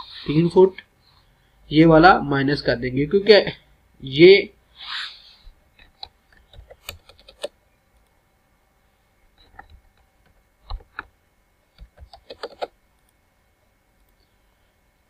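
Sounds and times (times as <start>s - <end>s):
keyboard keystrokes: 6.4s - 7.5s, 11.8s - 12.7s.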